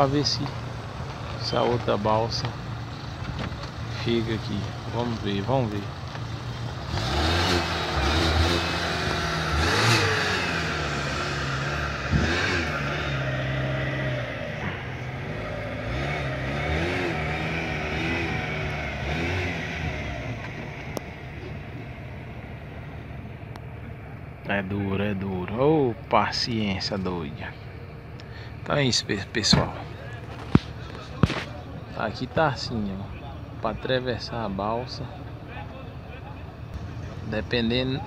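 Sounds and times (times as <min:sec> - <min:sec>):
engine revving: 0:00.0 - 0:23.0
engines humming: 0:00.0 - 0:38.0.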